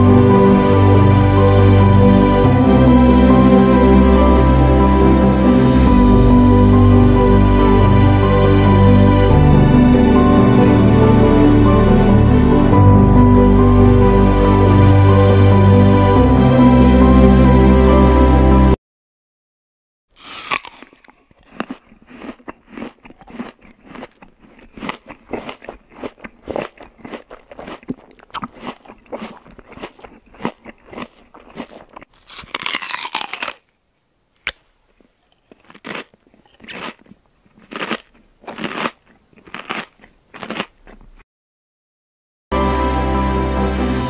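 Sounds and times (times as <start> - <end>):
toddler chewing face mask: 20.2 - 33.8, 34.4 - 41.2.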